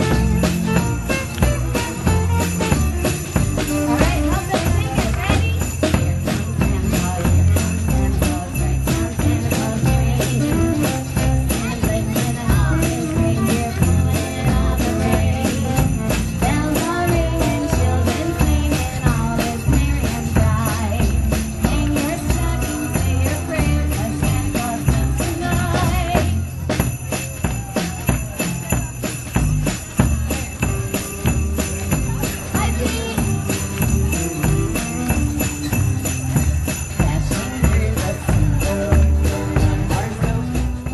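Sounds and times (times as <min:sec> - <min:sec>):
saxophone melody: 0:00.0 - 0:05.0
bass line: 0:00.0 - 0:40.9
jingle bells shaken: 0:00.0 - 0:40.9.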